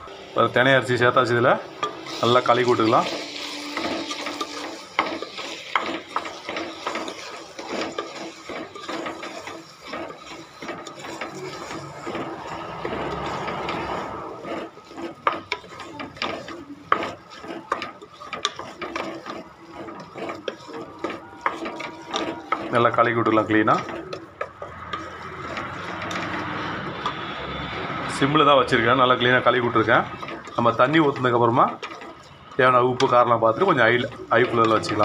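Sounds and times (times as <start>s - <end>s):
spatula scraping grains in pot: 0.0s - 35.0s.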